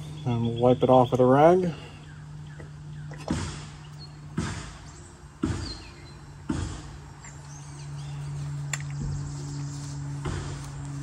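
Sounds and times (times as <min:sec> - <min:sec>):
air compressor humming: 0:00.0 - 0:11.0
sharp knock: 0:03.2 - 0:03.8, 0:04.4 - 0:04.8.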